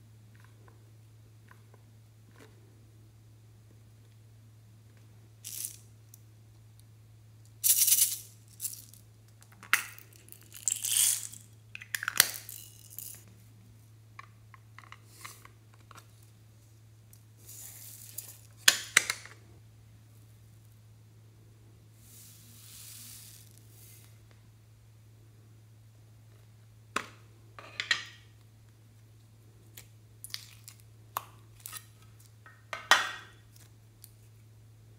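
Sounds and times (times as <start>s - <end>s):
beads rattling and pattering: 7.6s - 9.0s, 9.8s - 11.6s, 12.2s - 13.3s.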